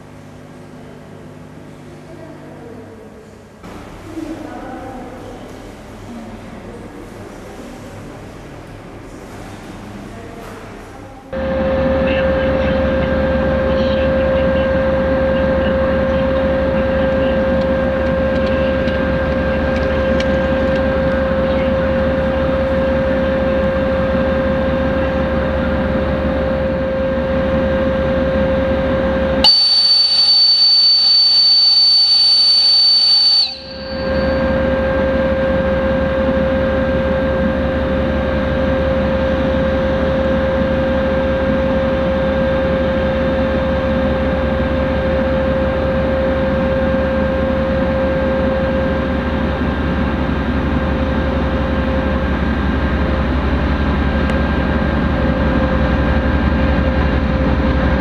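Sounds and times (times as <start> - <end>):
diesel locomotive idling: 0.0 - 58.0
shrill high-pitched whistle: 29.4 - 34.8.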